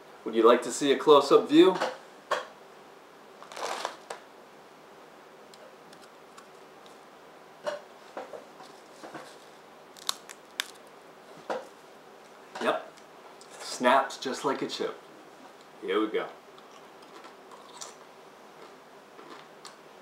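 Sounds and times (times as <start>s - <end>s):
chip snapping: 10.0s - 10.9s.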